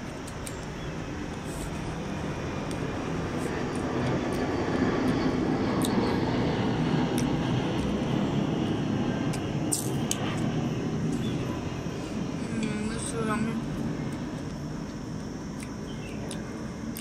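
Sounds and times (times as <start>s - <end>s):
low rumbling noise: 0.0s - 17.0s
mango being chewed: 2.6s - 6.1s, 7.1s - 8.0s, 15.4s - 17.0s.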